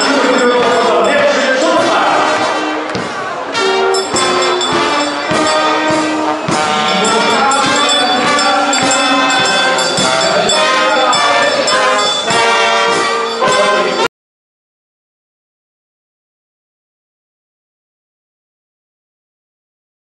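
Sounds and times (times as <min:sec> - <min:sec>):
drum beat: 0:00.0 - 0:14.1
marching band playing: 0:00.0 - 0:14.1.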